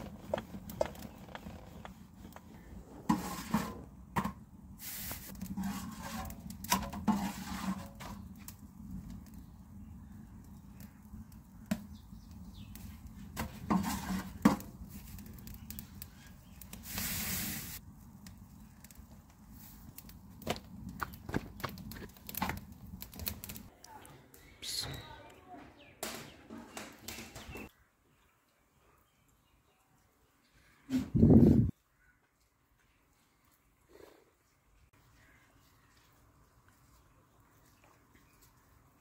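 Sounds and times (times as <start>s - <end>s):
straw fire crackling: 0.0s - 25.3s
brief hiss: 4.8s - 5.3s, 16.8s - 17.8s.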